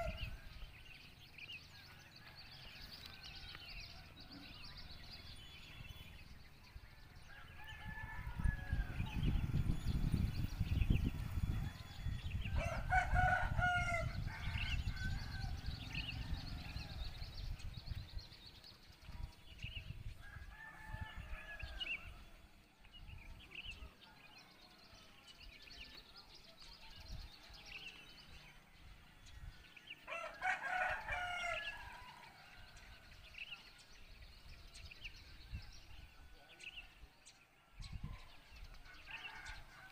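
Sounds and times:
roosters crowing: 0.0s - 0.4s, 7.2s - 9.5s, 11.8s - 17.3s, 30.0s - 32.8s, 38.8s - 39.9s
small birds chirping: 0.0s - 39.9s.

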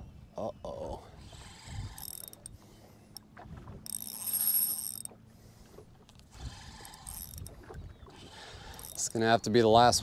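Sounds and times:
spinning reel whirring: 1.2s - 2.6s, 3.8s - 5.2s, 6.3s - 7.5s, 8.2s - 9.3s.

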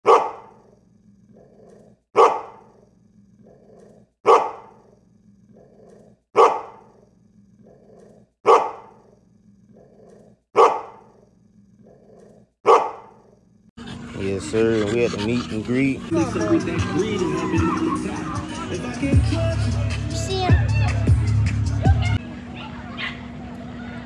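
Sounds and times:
dog barking: 0.0s - 0.7s, 1.4s - 2.8s, 3.4s - 5.0s, 5.6s - 7.0s, 7.7s - 9.2s, 9.8s - 11.2s, 11.8s - 13.4s, 22.6s - 23.2s
dog growling: 0.5s - 2.0s, 2.6s - 6.2s, 6.8s - 10.4s, 11.0s - 12.5s.

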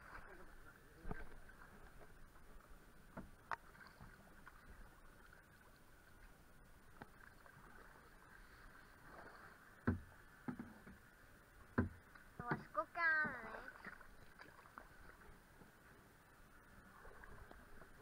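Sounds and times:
paddle in water: 0.0s - 18.0s
knocks on plastic canoe: 9.8s - 10.9s, 11.7s - 12.7s.

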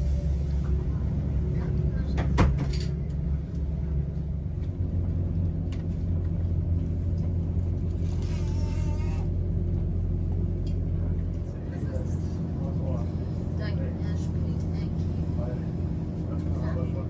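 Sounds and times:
train rumbling on track: 0.0s - 17.0s.

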